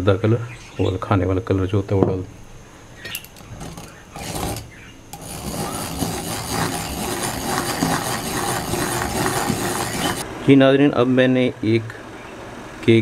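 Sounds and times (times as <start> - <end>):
egg beater whirring and rattling: 3.2 - 10.2.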